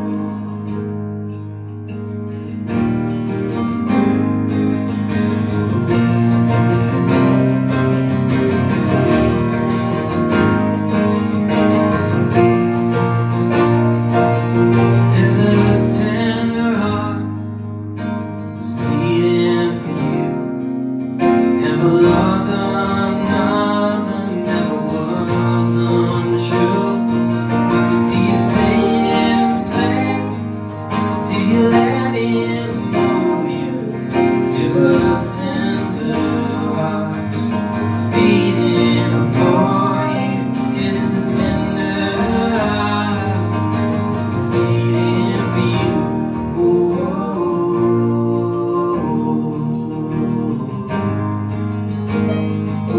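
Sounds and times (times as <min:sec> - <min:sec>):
keyboard: 0:00.0 - 0:52.9
strummed acoustic guitars: 0:00.0 - 0:52.9
upright bass: 0:00.0 - 0:52.9
man and woman singing: 0:15.0 - 0:17.4, 0:18.6 - 0:20.4, 0:21.5 - 0:51.3.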